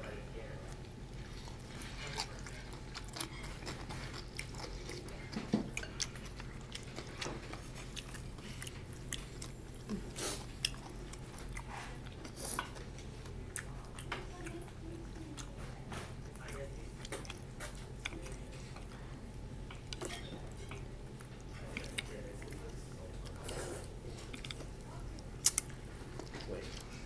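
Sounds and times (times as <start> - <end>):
steady low hum: 0.0 - 27.0
people chewing noodles: 0.7 - 27.0.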